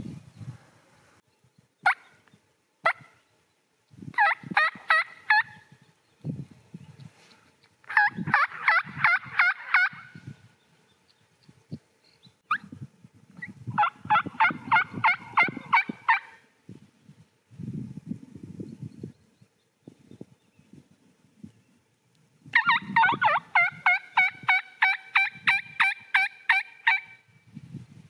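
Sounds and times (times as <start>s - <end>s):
turkey yelping: 4.2s - 5.6s, 7.9s - 10.1s, 13.8s - 16.4s, 22.6s - 27.2s.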